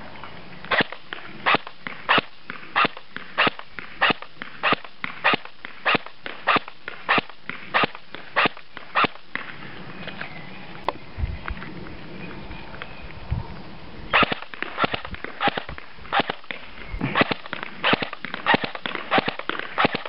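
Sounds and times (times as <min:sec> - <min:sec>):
airsoft rifle single shots: 0:00.7 - 0:09.5, 0:14.1 - 0:16.6, 0:17.2 - 0:20.0.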